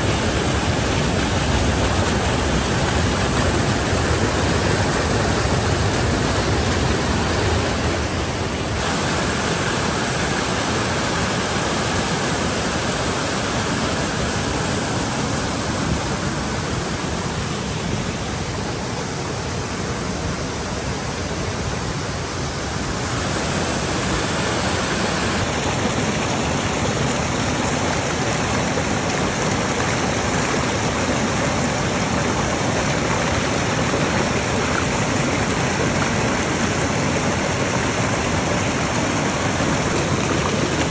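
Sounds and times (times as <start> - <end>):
water rushing over rocks: 0.0 - 40.9.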